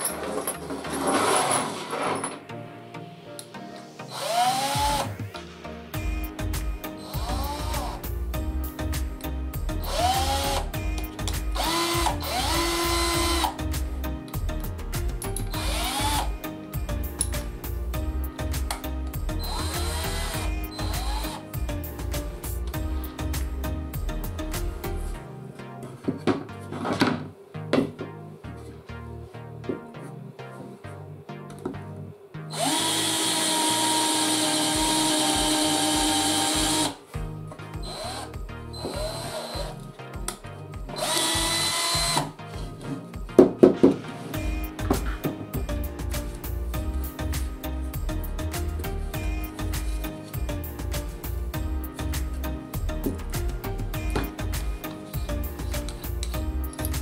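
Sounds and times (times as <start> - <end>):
background music with beat: 2.4 - 57.0
cordless drill motor whining: 4.1 - 5.2, 7.0 - 8.0, 9.8 - 10.7, 11.6 - 13.6, 15.6 - 16.3, 19.4 - 21.4, 32.5 - 37.0, 37.8 - 39.8, 40.9 - 42.3.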